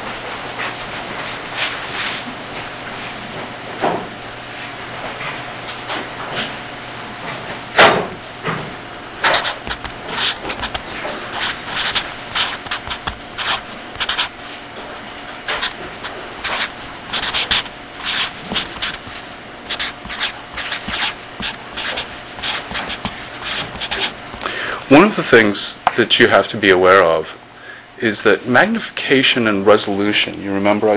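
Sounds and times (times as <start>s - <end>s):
faint steady hum: 0.0s - 30.9s
scratchy writing on board: 9.2s - 19.1s, 19.7s - 24.1s.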